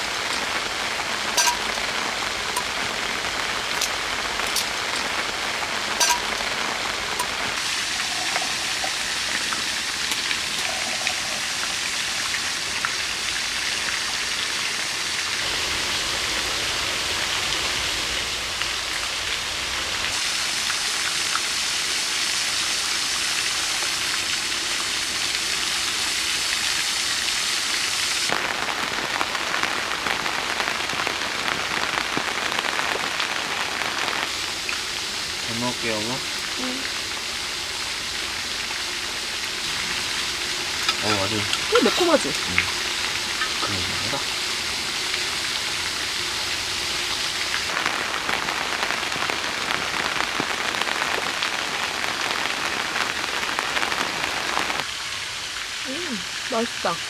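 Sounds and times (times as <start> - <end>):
steady rain falling: 0.0 - 57.0
sharp raindrop ticks: 0.2 - 14.7.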